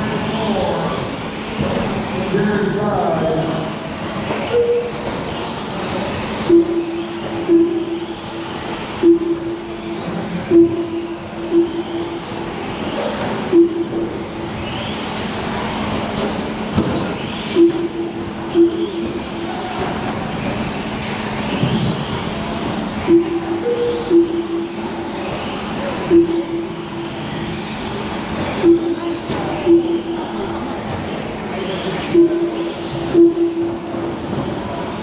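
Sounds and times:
short lap-timer beeps: 4.5s - 5.1s, 6.5s - 12.4s, 13.5s - 14.2s, 17.5s - 19.5s, 23.0s - 24.9s, 26.0s - 27.1s, 28.6s - 30.4s, 32.1s - 33.9s.

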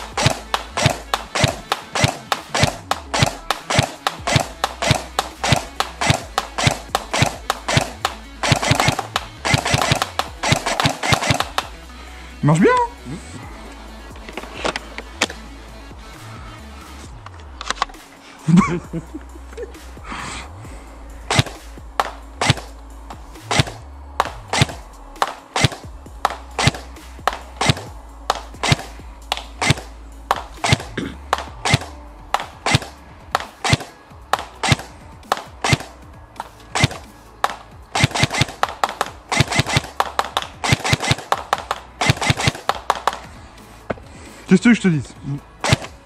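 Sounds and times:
airsoft gun firing: 0.0s - 11.8s, 21.3s - 22.7s, 23.4s - 43.3s, 45.6s - 46.0s.

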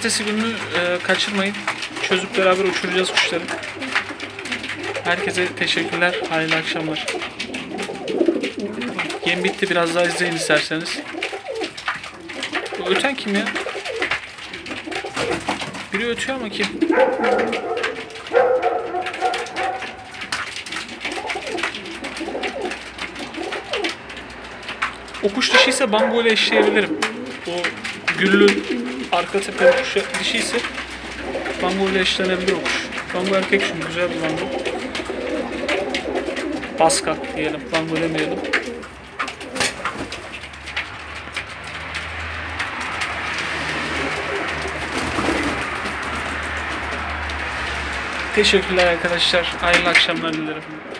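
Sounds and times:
pigeons cooing: 0.0s - 50.9s.

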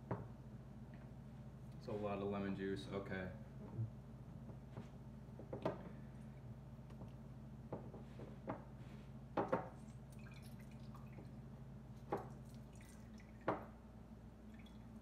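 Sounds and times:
low steady hum: 0.0s - 15.0s
lemon juice dripping and squishing: 9.7s - 13.7s.

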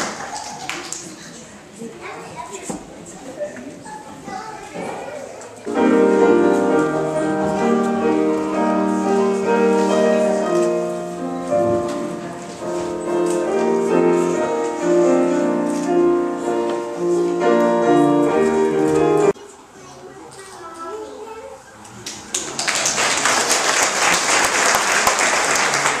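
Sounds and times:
keyboard music: 5.7s - 19.4s.

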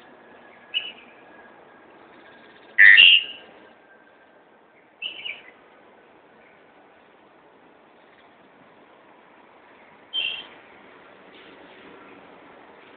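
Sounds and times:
bird calling: 0.0s - 1.2s, 2.2s - 3.6s, 5.0s - 5.6s, 10.1s - 10.6s
steady background noise: 0.0s - 12.9s.

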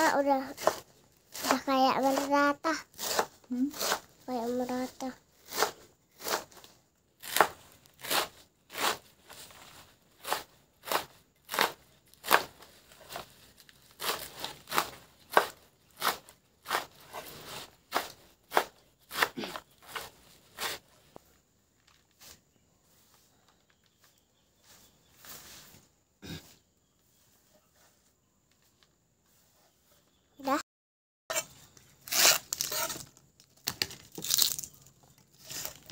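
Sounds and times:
knife chopping leafy greens: 0.2s - 21.1s.

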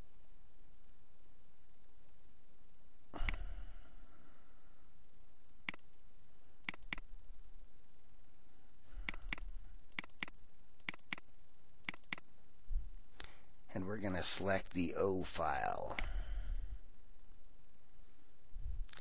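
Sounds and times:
steady low hiss: 0.0s - 19.0s
computer mouse double-clicking: 6.6s - 7.0s, 9.1s - 11.2s, 11.8s - 12.2s.

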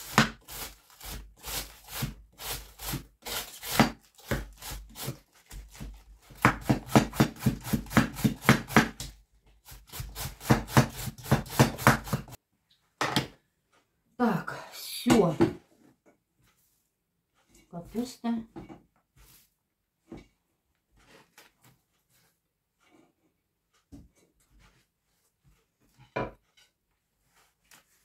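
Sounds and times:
knife slicing cabbage on board: 0.0s - 12.4s.

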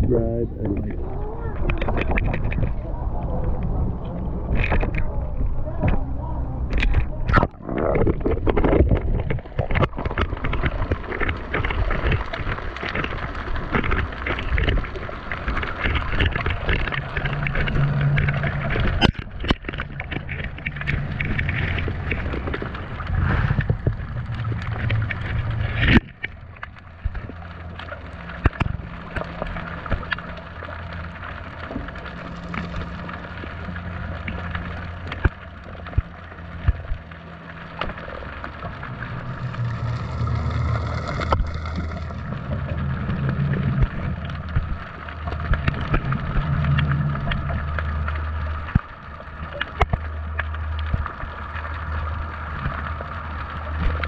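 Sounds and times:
underwater low drone: 0.0s - 54.0s.

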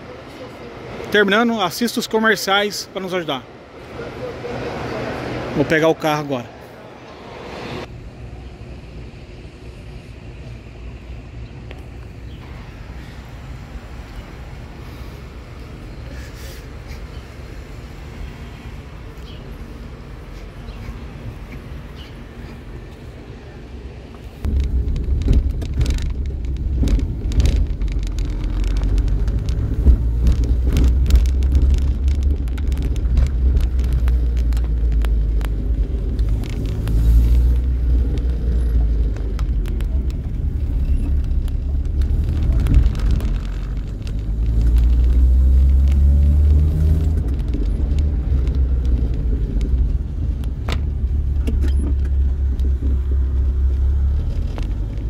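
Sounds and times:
car engine and road rumble: 0.0s - 55.0s
small clicks and knocks: 24.4s - 53.1s.

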